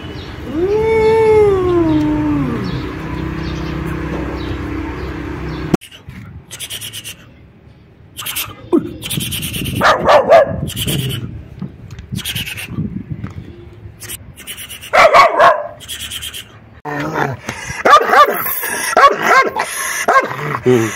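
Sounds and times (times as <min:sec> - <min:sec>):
adult dog barking: 0:09.8 - 0:10.7, 0:14.9 - 0:15.8, 0:17.8 - 0:20.6
puppy barking: 0:09.8 - 0:10.7, 0:14.9 - 0:15.8, 0:17.8 - 0:20.6.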